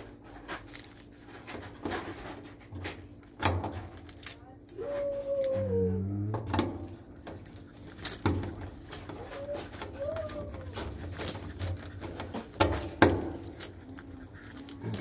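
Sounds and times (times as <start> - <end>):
plastic bag rustling: 6.9 - 15.0.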